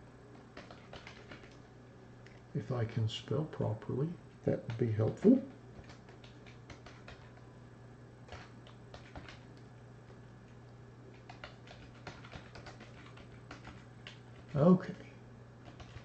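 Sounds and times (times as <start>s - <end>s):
typing on computer keyboard: 0.4s - 1.6s, 4.5s - 7.4s, 8.3s - 9.6s, 11.1s - 14.6s, 15.6s - 16.0s.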